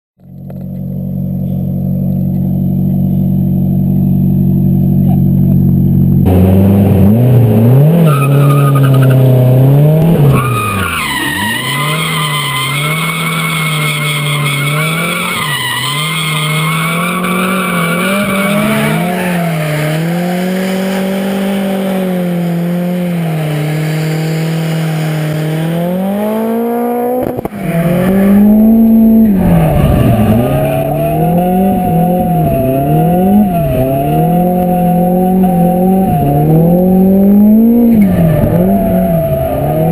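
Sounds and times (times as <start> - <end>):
car engine revving: 0.2 - 39.9
tyres squealing: 10.2 - 23.7.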